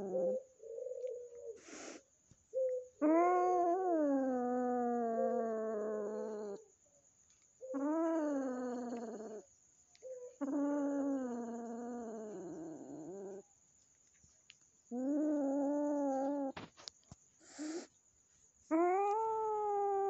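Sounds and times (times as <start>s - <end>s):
cat yowling: 3.0s - 6.6s.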